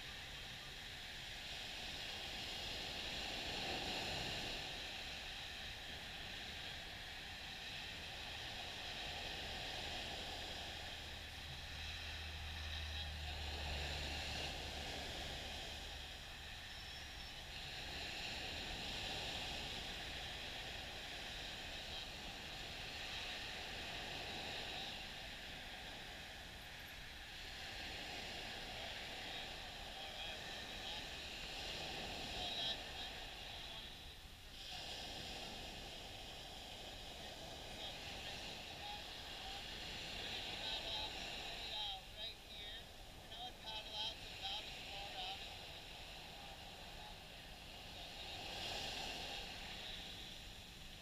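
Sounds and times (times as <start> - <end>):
waves washing on beach: 0.0 - 51.0
low hum: 4.6 - 31.3.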